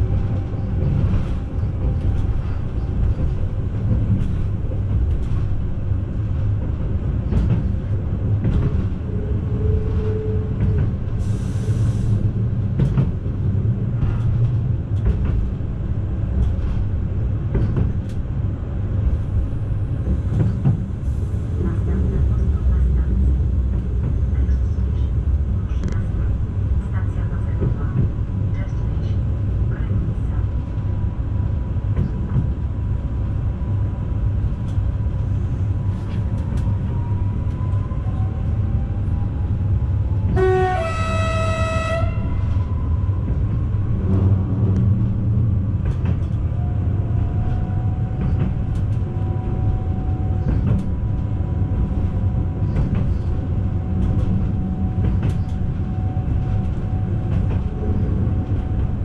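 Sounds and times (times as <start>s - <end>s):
train wheels rumbling on rails: 0.0s - 59.0s
train horn: 40.3s - 42.6s.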